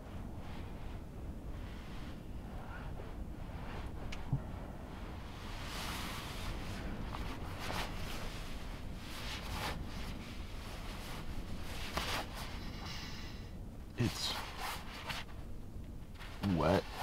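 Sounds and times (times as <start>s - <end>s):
low steady rumble: 0.0s - 17.0s
sleeping bag rustling: 3.2s - 13.0s.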